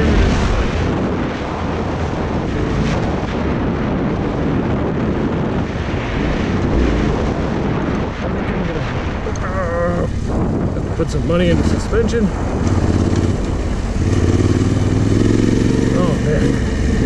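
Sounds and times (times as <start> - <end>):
motorcycle engine: 0.0 - 1.6, 5.0 - 17.0
wind noise on microphone: 0.0 - 17.0.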